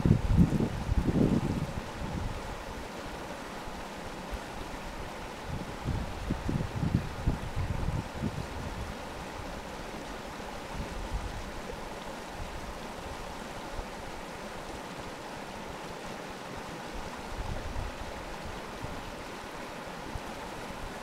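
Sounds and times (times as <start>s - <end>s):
wind buffeting microphone: 0.0s - 2.5s, 5.4s - 9.0s
stream rushing: 0.0s - 21.0s.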